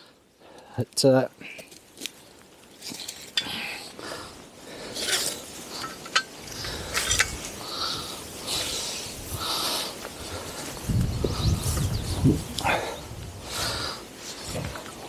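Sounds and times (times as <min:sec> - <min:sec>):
strap and brush rustling: 0:04.8 - 0:15.0
metal clicks and clinks: 0:05.0 - 0:07.4
wind buffeting microphone: 0:06.4 - 0:15.0.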